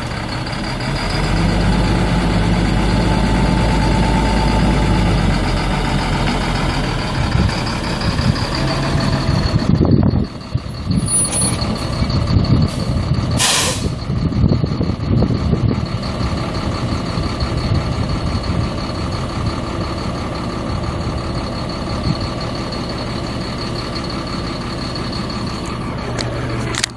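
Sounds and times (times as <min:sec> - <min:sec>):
diesel truck engine idling: 0:00.0 - 0:26.9.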